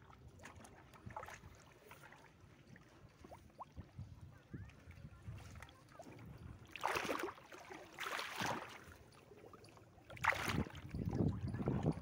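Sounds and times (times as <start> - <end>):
river water sloshing and splashing: 0.0 - 12.0
push net swishing through water: 6.7 - 8.9.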